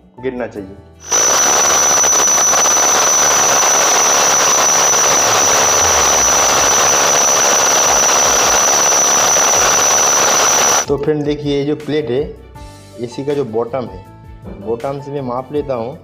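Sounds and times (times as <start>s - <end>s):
power drill grinding through wall: 1.0s - 10.9s.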